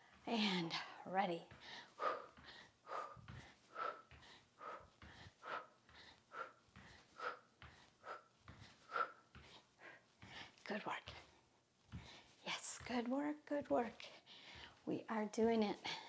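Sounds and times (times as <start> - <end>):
woman breathing hard: 0.9 - 12.4, 14.0 - 14.8.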